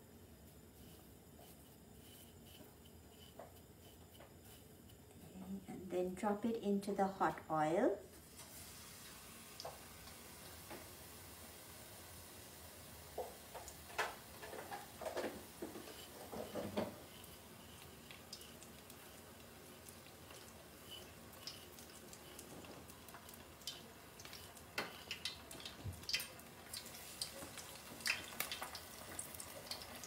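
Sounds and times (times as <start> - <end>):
fish frying in oil: 8.2 - 30.0.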